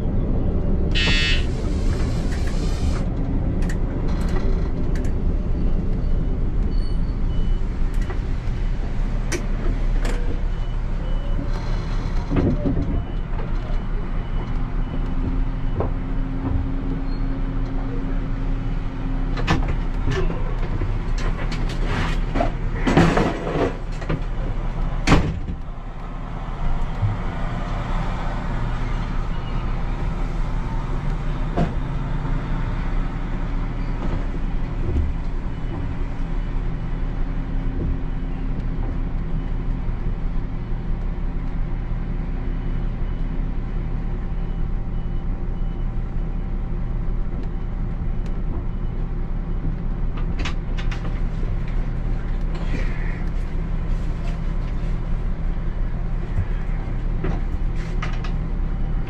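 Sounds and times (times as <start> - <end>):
train engine drone: 0.0 - 59.0.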